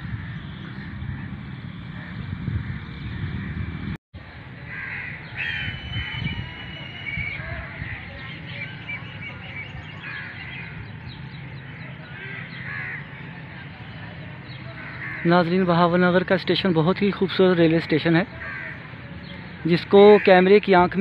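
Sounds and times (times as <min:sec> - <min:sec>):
crows cawing: 0:04.7 - 0:06.1, 0:10.0 - 0:10.8, 0:12.0 - 0:13.3, 0:14.7 - 0:15.7, 0:18.3 - 0:19.0, 0:20.0 - 0:20.6
birds calling in short notes: 0:04.7 - 0:13.4.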